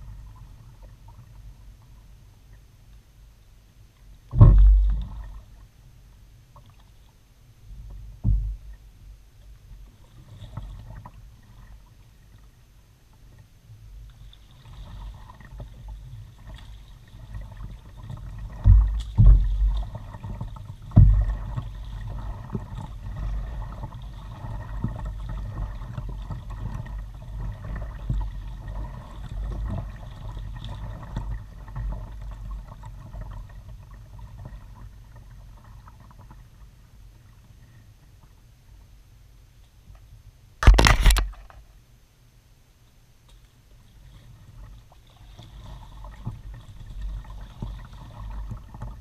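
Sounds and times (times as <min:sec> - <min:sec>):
water against hull: 0:00.0 - 0:42.0, 0:42.7 - 0:49.0
kayak paddle strokes: 0:14.1 - 0:36.6, 0:43.3 - 0:49.0.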